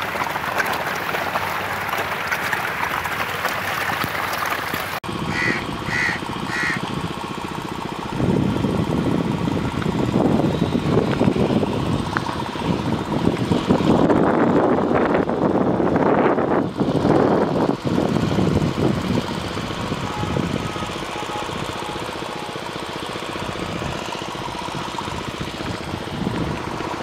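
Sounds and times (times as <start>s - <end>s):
fish thrashing and splashing: 0.0s - 6.7s
small engine chugging: 0.0s - 15.7s, 16.4s - 27.0s.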